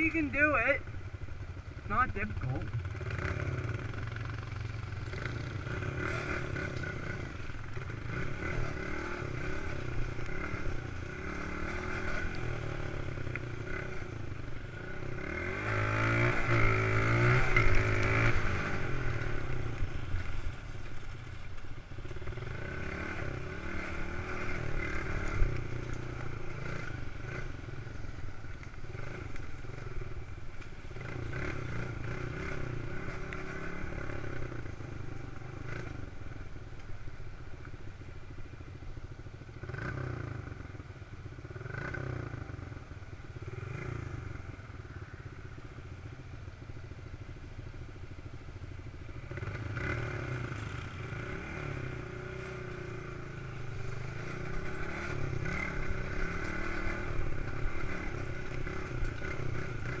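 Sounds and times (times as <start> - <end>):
dirt bike engine revving: 1.8 - 20.4, 22.1 - 36.2, 41.5 - 42.6, 49.2 - 60.0.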